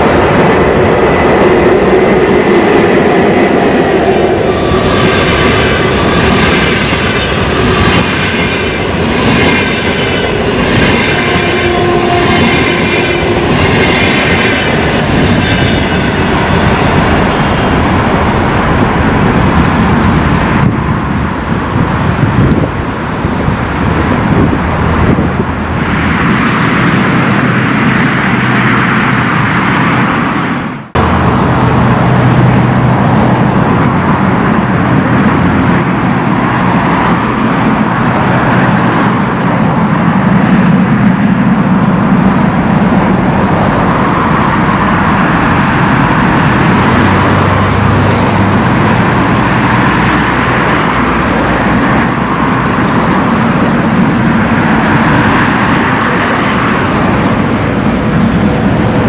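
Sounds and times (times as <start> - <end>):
electric train running: 0.0 - 59.0
freight train rumbling: 0.0 - 59.0.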